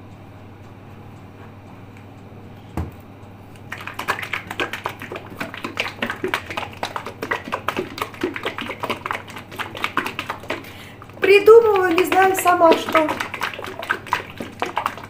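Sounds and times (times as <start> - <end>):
plastic container rattling when shaken: 3.7 - 15.0.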